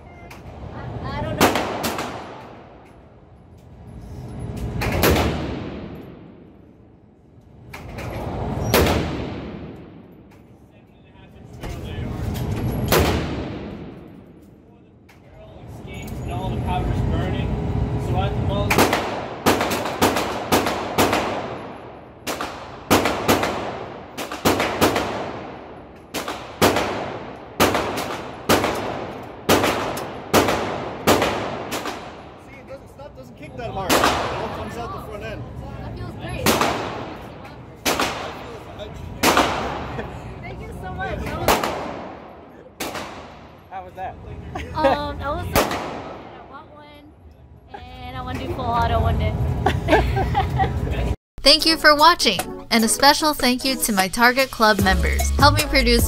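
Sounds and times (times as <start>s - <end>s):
pistol shots echoing indoors: 18.8s - 32.3s.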